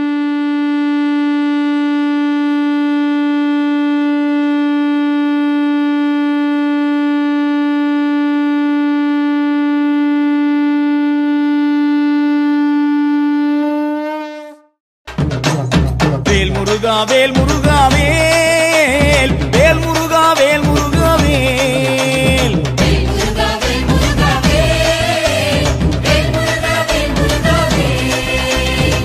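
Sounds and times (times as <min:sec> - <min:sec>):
long drone note: 0:00.0 - 0:14.8, 0:21.8 - 0:29.0.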